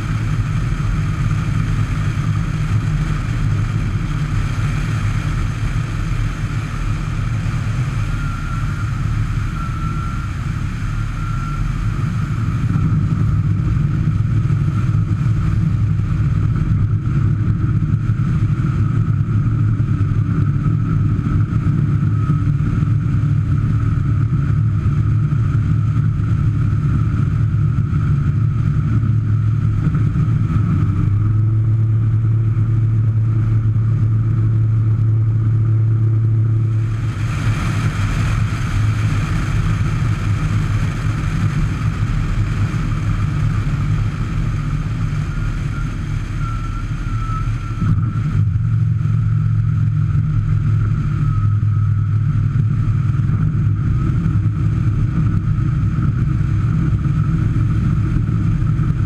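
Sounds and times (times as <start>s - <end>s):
propeller aircraft engine drone: 0.0s - 59.0s.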